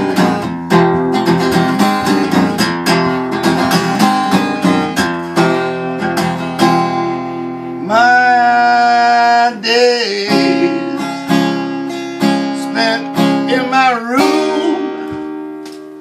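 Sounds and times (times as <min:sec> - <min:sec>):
acoustic guitar strumming: 0:00.0 - 0:16.0
man singing: 0:07.8 - 0:11.4, 0:12.4 - 0:15.2.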